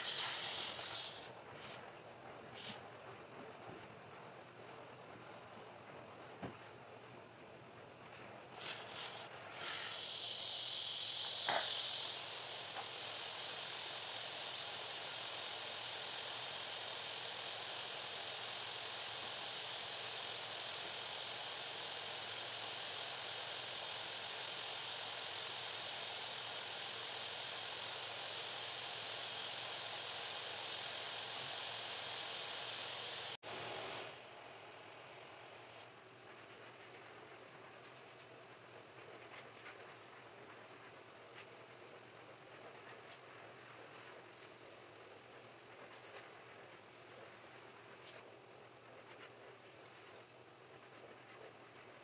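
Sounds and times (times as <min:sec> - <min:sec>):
carpet cleaning wand hissing: 0:00.0 - 0:01.4, 0:08.6 - 0:38.4.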